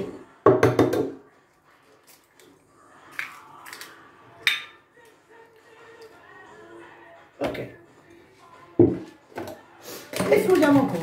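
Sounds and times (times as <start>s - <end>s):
eggshell cracking and clicking: 3.1s - 4.0s.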